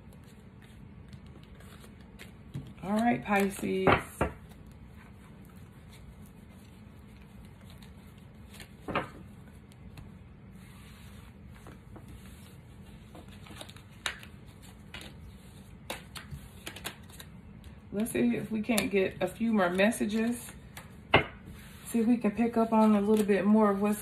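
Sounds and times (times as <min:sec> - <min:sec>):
cards tapping and sliding: 0:00.6 - 0:04.6, 0:15.8 - 0:18.1.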